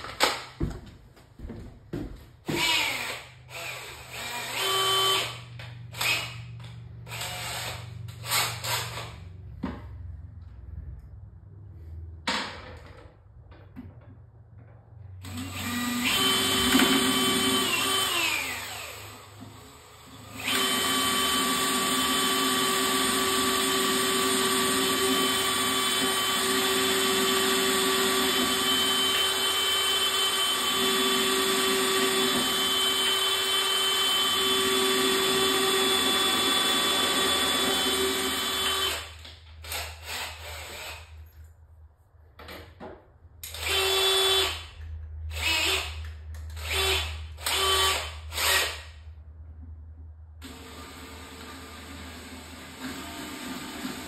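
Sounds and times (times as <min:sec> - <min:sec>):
cordless drill drilling wood: 0:02.5 - 0:06.4, 0:07.1 - 0:09.1, 0:15.2 - 0:41.1, 0:43.5 - 0:44.7, 0:45.3 - 0:46.0, 0:46.6 - 0:48.9.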